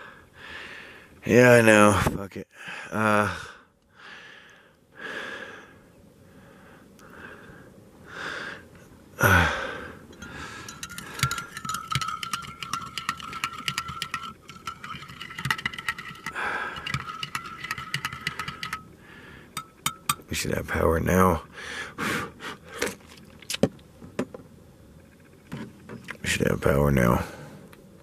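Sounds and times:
spoon clinking in ceramic mug: 0:10.2 - 0:18.9, 0:19.6 - 0:20.3.

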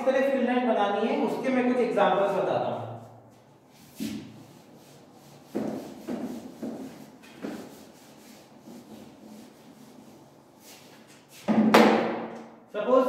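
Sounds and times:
duster rubbing whiteboard: 0:02.1 - 0:11.5.

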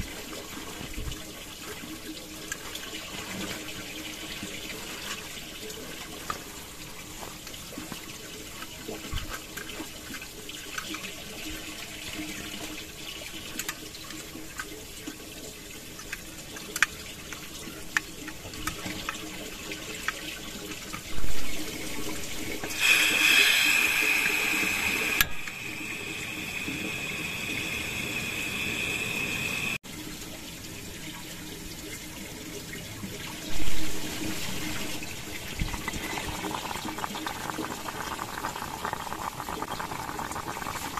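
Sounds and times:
flowing water: 0:00.0 - 0:40.9
gas hissing: 0:21.5 - 0:29.8, 0:33.5 - 0:40.9.

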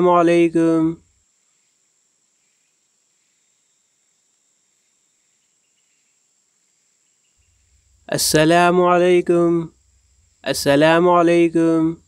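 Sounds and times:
person speaking a phrase: 0:00.0 - 0:01.0, 0:08.1 - 0:09.7, 0:10.4 - 0:12.0
faint steady hiss: 0:00.0 - 0:12.0.

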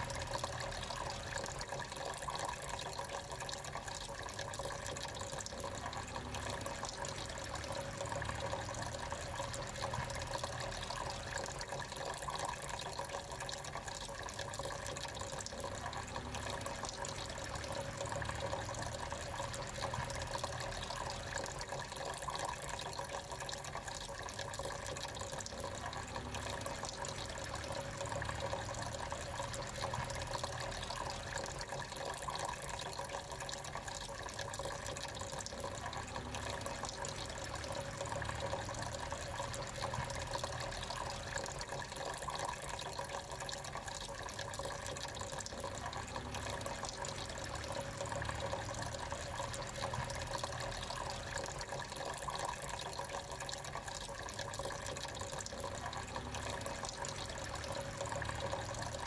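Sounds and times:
fountain water trickling and splashing: 0:00.0 - 0:59.0.

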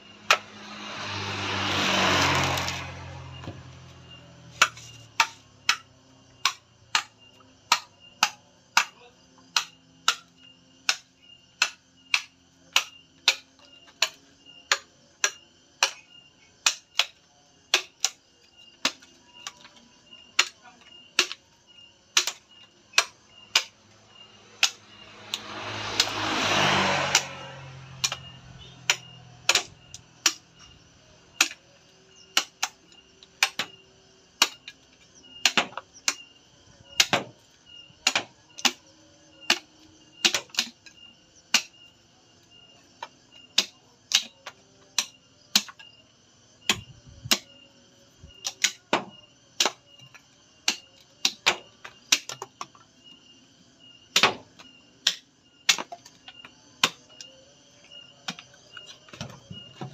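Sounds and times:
knife striking coconut shell: 0:06.4 - 0:13.4, 0:21.2 - 0:21.4, 0:22.2 - 0:23.7, 0:24.6 - 0:27.4, 0:28.0 - 0:30.4, 0:31.4 - 0:31.6, 0:33.4 - 0:33.8, 0:35.4 - 0:36.2, 0:37.0 - 0:37.3, 0:38.0 - 0:38.8, 0:39.5 - 0:40.8, 0:41.5 - 0:41.7, 0:43.6 - 0:44.4, 0:45.0 - 0:45.8, 0:48.4 - 0:52.4, 0:54.1 - 0:56.1, 0:56.8 - 0:57.2.

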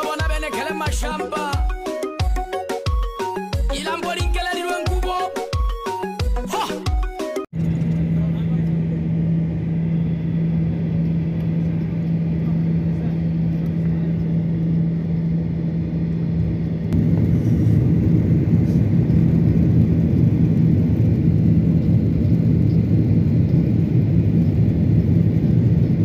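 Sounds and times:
jet engine hum and rumble: 0:07.5 - 0:26.0.

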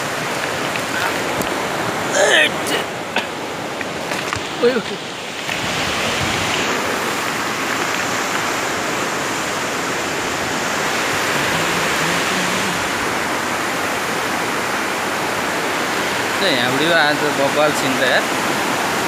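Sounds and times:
river rushing over stones: 0:00.0 - 0:19.0.

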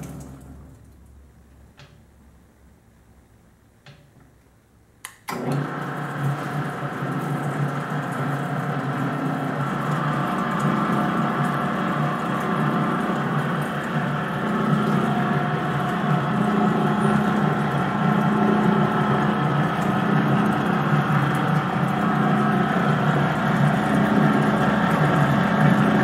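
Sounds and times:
mixer motor running: 0:05.3 - 0:26.0.

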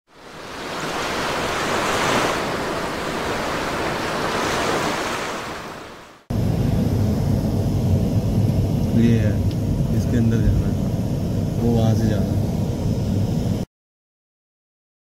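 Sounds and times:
sea waves breaking: 0:00.1 - 0:06.3.

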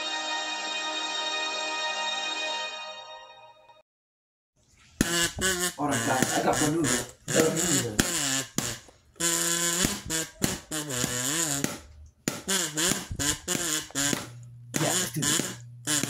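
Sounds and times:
person making wordless vocal sounds: 0:05.8 - 0:08.0.

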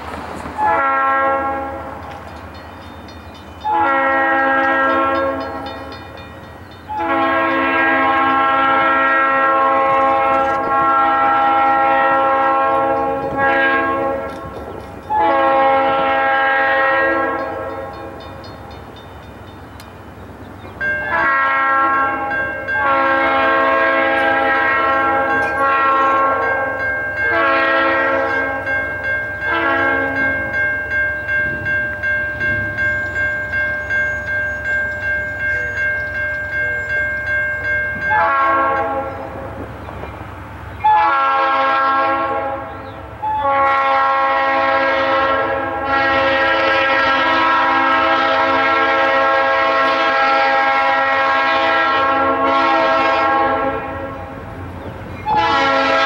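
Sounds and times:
train low rumble: 0:00.0 - 0:56.0
train air horn blasts: 0:00.6 - 0:02.1, 0:03.6 - 0:06.0, 0:06.9 - 0:18.2, 0:21.0 - 0:30.5, 0:37.9 - 0:39.6, 0:40.8 - 0:54.5, 0:55.2 - 0:56.0.

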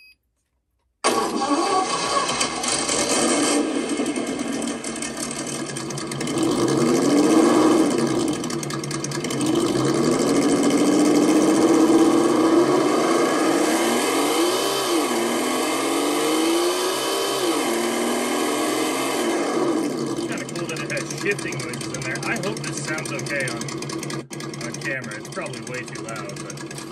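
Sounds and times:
wheels spinning: 0:01.1 - 0:13.7, 0:19.8 - 0:26.9
simulated engine revving: 0:01.1 - 0:26.9.

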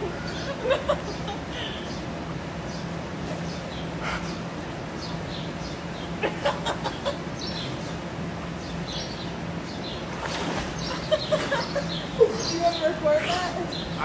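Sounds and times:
steady low hum: 0:00.0 - 0:14.0
small birds chirping: 0:00.1 - 0:14.0
pool water splashing: 0:06.1 - 0:14.0.

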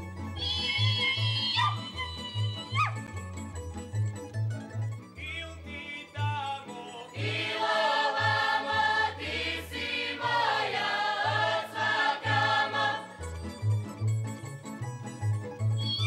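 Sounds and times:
instrumental accompaniment with bass line: 0:02.7 - 0:05.2
mixed choir singing: 0:07.2 - 0:13.2.

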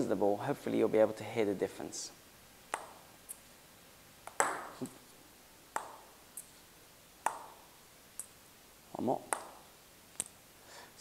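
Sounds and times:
table tennis bat hitting ball: 0:02.7 - 0:03.1, 0:04.2 - 0:05.0, 0:05.7 - 0:06.2, 0:07.2 - 0:08.3, 0:09.2 - 0:09.7.

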